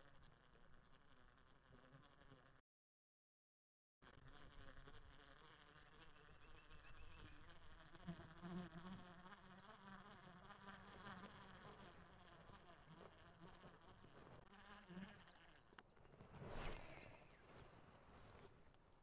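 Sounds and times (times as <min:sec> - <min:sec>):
flying insect buzzing: 0:00.0 - 0:02.6, 0:04.0 - 0:15.9
faint chirping: 0:06.2 - 0:08.0.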